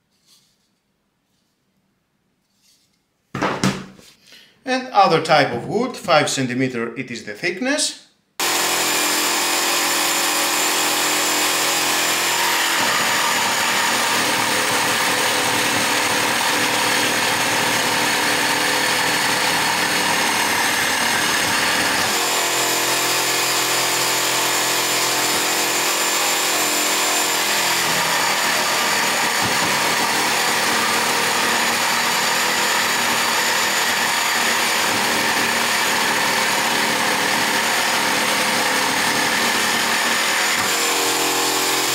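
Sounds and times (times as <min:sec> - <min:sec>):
jigsaw sawing through wood: 0:08.4 - 0:41.9.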